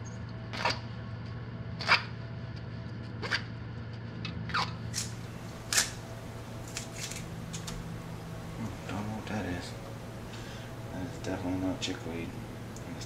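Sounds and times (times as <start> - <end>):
steady low hum: 0.0 - 13.0
leafy stems rustling and crackling: 4.9 - 7.9.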